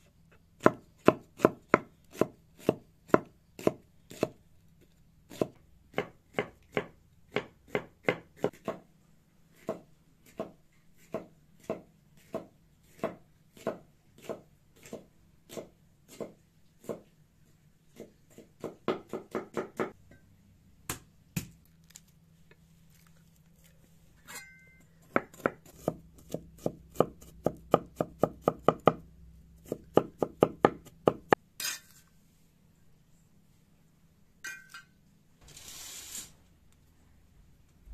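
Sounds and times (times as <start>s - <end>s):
knife chopping on wooden board: 0.6s - 4.4s, 5.3s - 8.8s, 9.6s - 17.0s, 18.0s - 20.0s, 25.1s - 29.0s, 29.6s - 31.4s.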